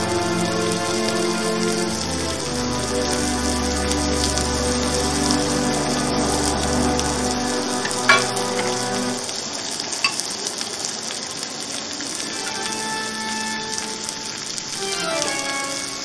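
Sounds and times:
soft background music: 0.0 - 9.3
meat and vegetables sizzling: 0.0 - 16.0.

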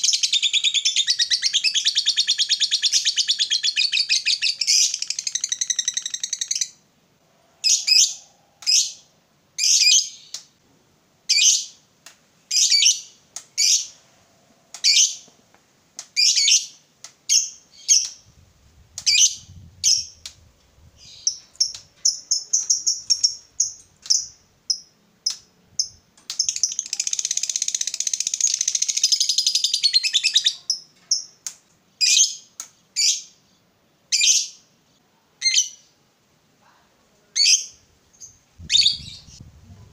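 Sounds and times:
lovebird high chirps: 0.0 - 6.8, 7.6 - 10.4, 12.5 - 14.0, 16.2 - 18.3, 19.0 - 20.3, 20.9 - 31.4, 32.0 - 33.3, 37.4 - 39.5
lovebird chattering trill: 37.4 - 39.4.

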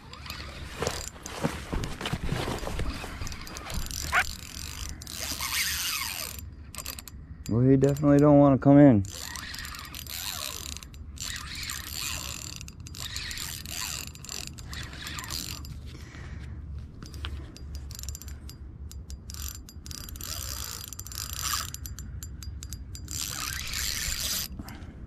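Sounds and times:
fishing reel ratcheting clicks: 3.3 - 15.8, 17.0 - 24.6.

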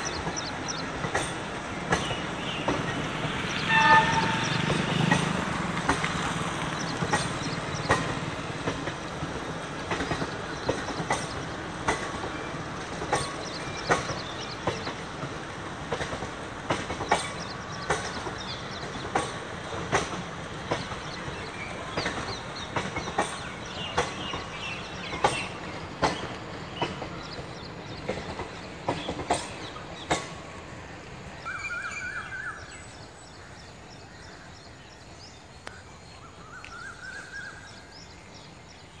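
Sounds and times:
train wheels clattering: 0.0 - 30.9
train rumble: 0.0 - 39.0
bird calling: 31.4 - 33.5.

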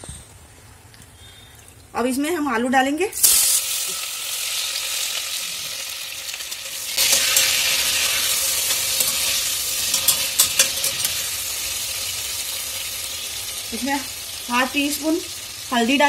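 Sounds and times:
potatoes sizzling in hot oil: 3.2 - 16.0
spatula scraping and clicking on pot: 8.6 - 11.3.

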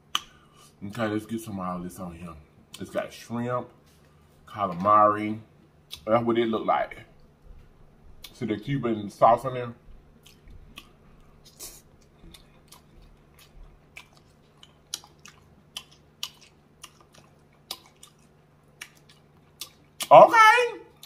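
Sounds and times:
person chewing with wet smacks: 9.9 - 20.1.

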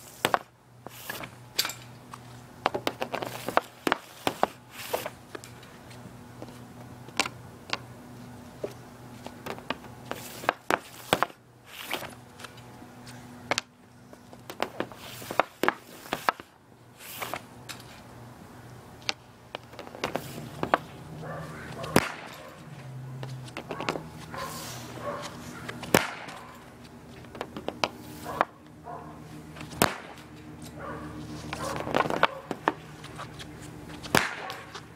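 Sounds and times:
hockey stick slapping a pad: 0.2 - 1.3, 2.6 - 5.5, 9.3 - 12.6, 14.4 - 16.5, 19.0 - 20.9, 21.7 - 22.6, 25.2 - 28.6, 29.6 - 30.3, 31.5 - 33.4, 34.0 - 34.9
puck cracking off stick: 0.2 - 1.4, 2.7 - 5.7, 9.4 - 12.6, 14.4 - 18.0, 19.0 - 20.9, 21.6 - 22.6, 25.6 - 28.5, 29.6 - 30.3, 31.5 - 34.9.

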